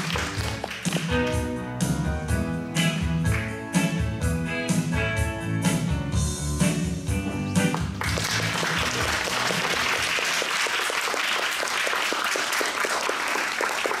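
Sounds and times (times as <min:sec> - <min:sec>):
audience applauding: 0:00.0 - 0:01.1, 0:07.7 - 0:14.0
recorded music: 0:00.0 - 0:10.3.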